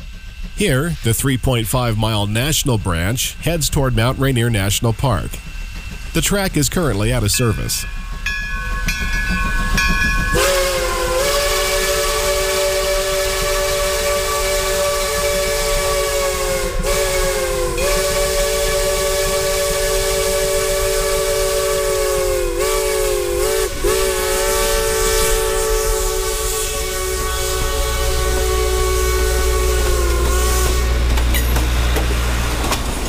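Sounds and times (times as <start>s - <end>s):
train rumbling past: 0.0s - 33.0s
steam locomotive chime whistle: 6.2s - 31.6s.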